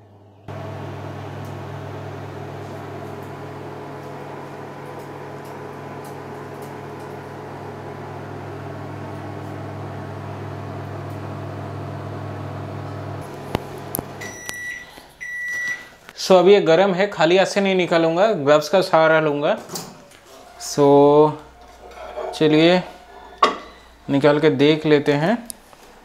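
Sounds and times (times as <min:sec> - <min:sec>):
microwave oven humming: 0:00.0 - 0:15.9.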